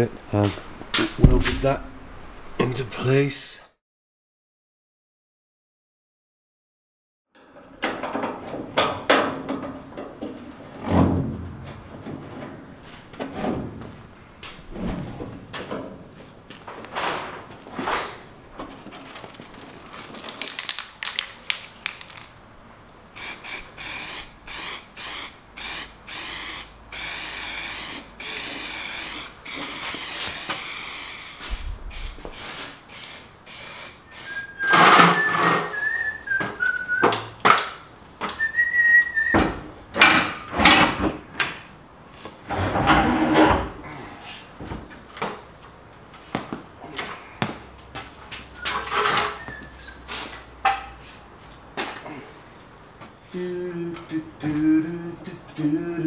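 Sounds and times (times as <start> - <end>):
person whistling: 34.1 - 37.1, 38.4 - 39.4.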